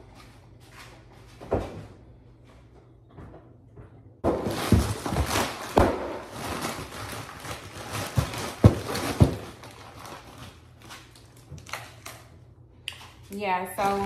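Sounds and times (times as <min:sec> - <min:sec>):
rustling handling noise: 0:04.3 - 0:12.3.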